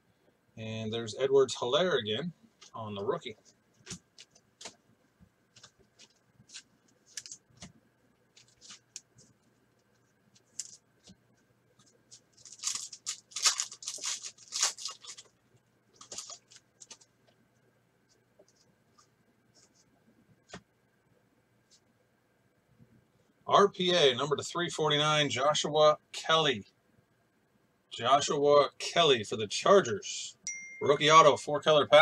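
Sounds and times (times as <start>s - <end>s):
wrapper and cards rustling: 5.5s - 7.7s, 8.3s - 11.2s, 11.8s - 17.1s
foil wrapper tearing: 12.3s - 15.3s.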